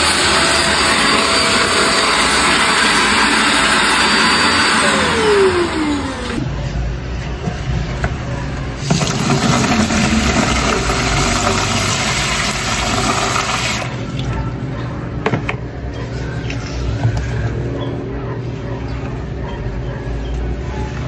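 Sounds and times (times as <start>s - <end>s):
water pouring into plastic tub: 8.8s - 14.2s.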